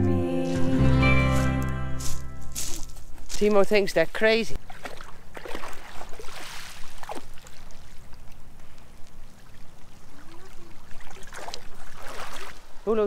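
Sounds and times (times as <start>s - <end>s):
dog wading through water: 4.6s - 12.8s.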